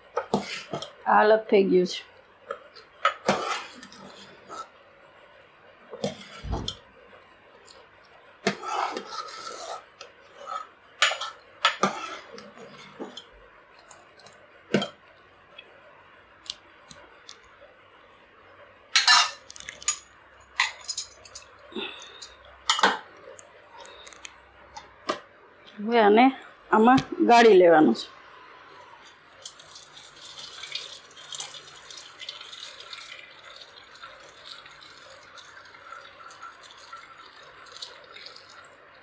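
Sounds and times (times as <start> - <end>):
spoon clinking and scraping pot: 8.5 - 13.2, 19.0 - 21.5.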